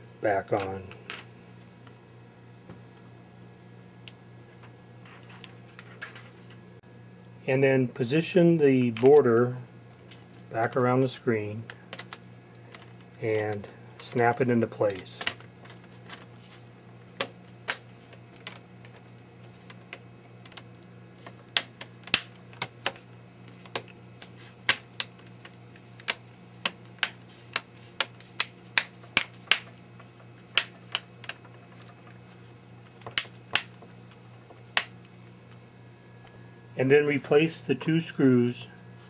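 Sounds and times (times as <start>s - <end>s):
plastic clips snapping: 21.5s - 23.0s, 30.4s - 31.9s, 32.8s - 35.6s.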